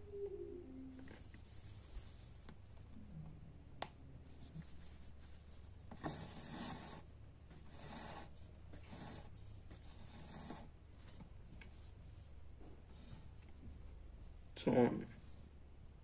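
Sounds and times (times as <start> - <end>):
low hum: 0.0 - 5.1.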